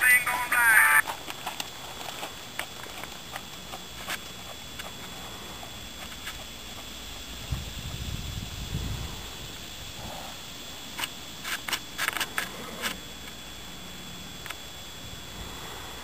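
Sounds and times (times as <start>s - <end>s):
person speaking: 0.0s - 1.2s.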